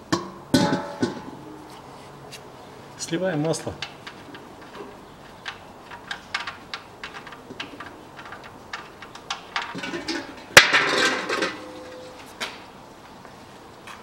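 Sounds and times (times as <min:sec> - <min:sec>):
metallic clank on steel basin: 0:00.1 - 0:01.4, 0:09.7 - 0:12.2.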